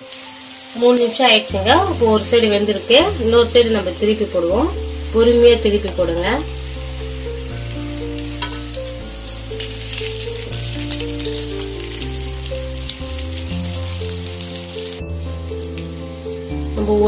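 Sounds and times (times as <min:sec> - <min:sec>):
background music of low notes: 0:00.0 - 0:17.0
cutlets sizzling in oil: 0:00.0 - 0:17.0
wooden spatula turning food: 0:05.0 - 0:16.2.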